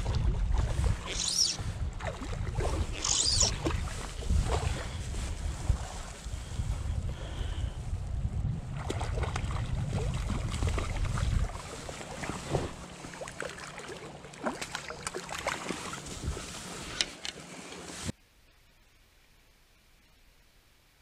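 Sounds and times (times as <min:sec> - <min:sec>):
river water splashing and gurgling: 0:00.0 - 0:06.2, 0:08.7 - 0:17.9
wind buffeting microphone: 0:00.0 - 0:12.9.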